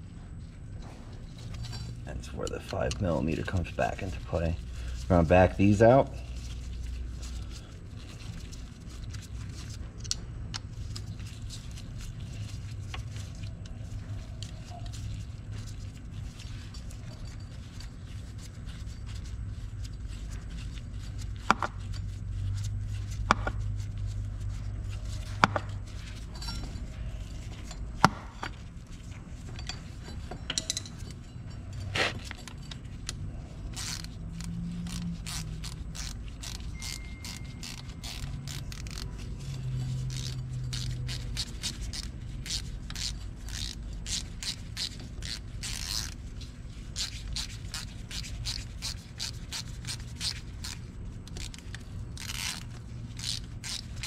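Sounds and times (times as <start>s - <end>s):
metal scraping: 11.2s - 50.5s.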